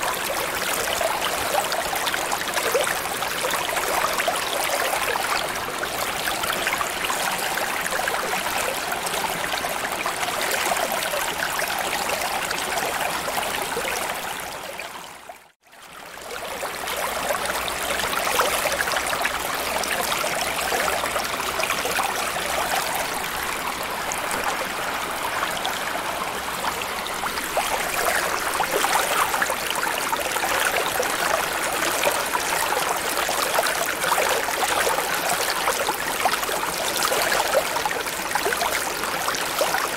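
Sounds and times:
rushing trickling water: 0:00.0 - 0:39.9.

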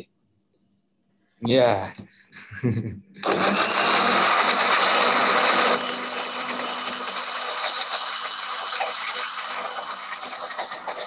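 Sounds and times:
blender motor running: 0:03.2 - 0:11.0.

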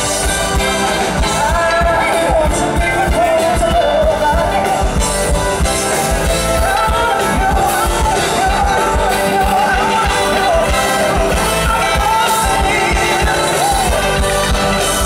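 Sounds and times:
drums: 0:00.0 - 0:15.0
woman singing: 0:06.5 - 0:15.0.

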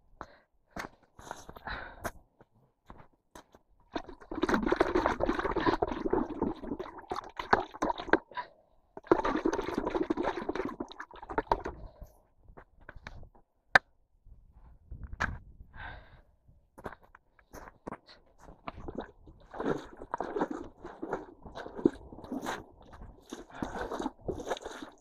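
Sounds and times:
water and mud sloshing: 0:03.9 - 0:12.0, 0:17.9 - 0:25.0.

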